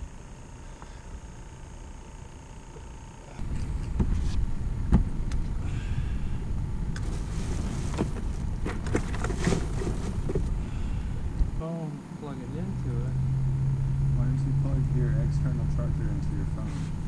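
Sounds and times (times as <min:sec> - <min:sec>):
steady low rumble: 0:03.3 - 0:17.0
plastic bag rustling: 0:07.0 - 0:10.6.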